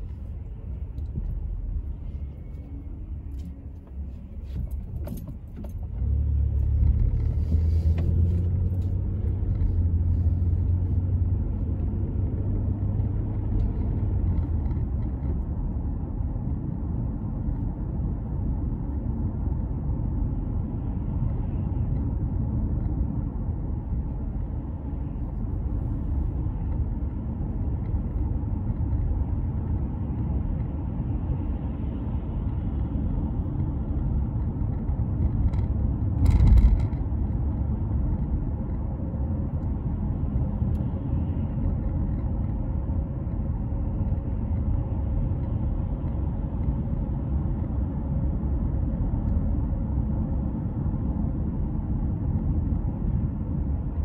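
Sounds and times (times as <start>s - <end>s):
car engine and tyre noise: 0.0s - 54.0s
light clicks and rattles: 34.4s - 38.9s.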